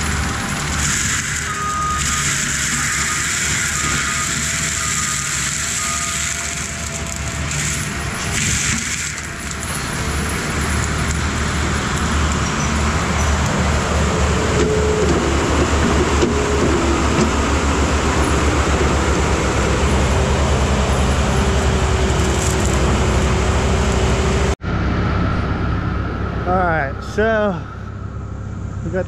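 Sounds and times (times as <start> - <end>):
tracked skid steer engine and tracks: 0.0 - 29.0.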